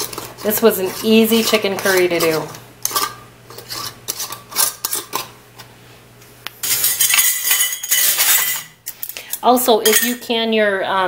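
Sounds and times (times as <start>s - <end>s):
metal lids clinking on glass jars: 6.6s - 8.8s, 9.8s - 10.3s.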